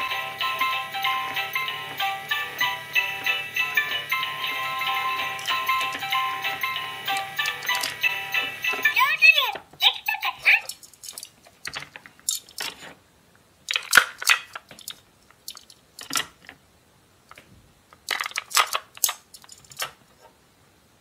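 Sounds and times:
plastic toys clicking and rattling: 7.0s - 9.0s, 10.4s - 13.0s, 13.6s - 16.6s, 17.3s - 20.0s.

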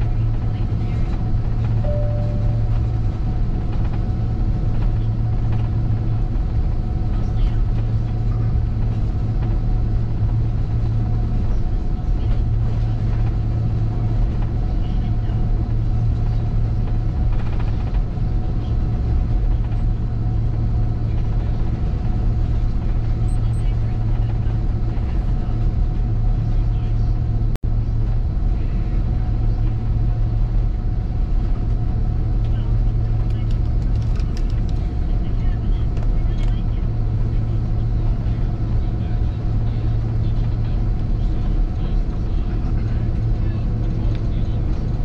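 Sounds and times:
jet engines and airflow drone: 0.0s - 45.0s
steady low hum: 0.0s - 45.0s
faint higher tone: 1.8s - 3.0s.

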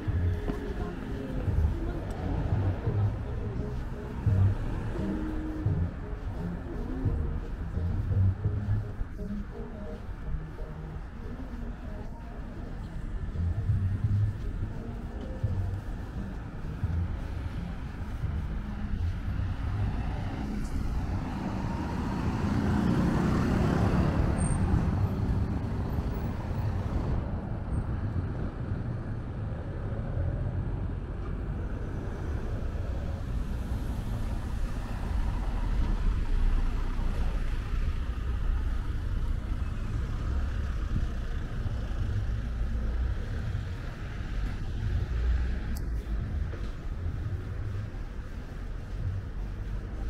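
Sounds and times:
vehicle passing: 0.0s - 27.3s
road traffic rumble: 0.0s - 50.0s.

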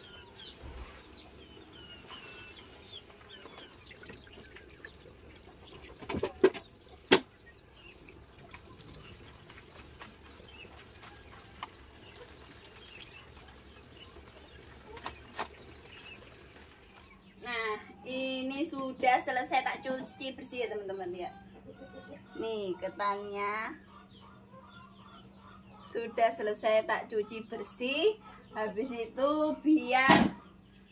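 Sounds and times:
rice washed by hand in water: 0.0s - 17.1s
birds chirping: 0.0s - 30.9s.

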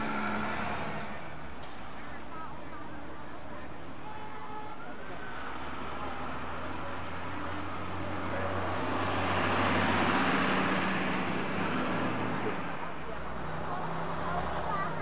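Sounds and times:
vehicle passing: 0.0s - 1.6s, 5.2s - 15.0s
bus engine idling: 0.0s - 15.0s.

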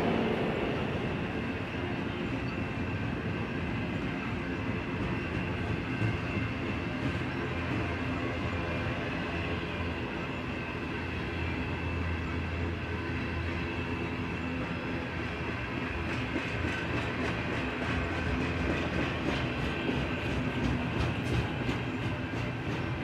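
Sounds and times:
steel wheels rumbling on rails: 0.0s - 23.0s.

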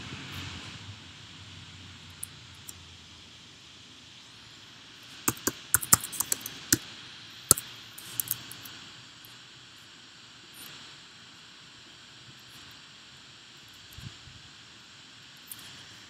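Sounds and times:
faint steady hiss: 0.0s - 16.0s
computer keyboard keys clicking: 5.3s - 6.8s, 7.5s - 8.5s.

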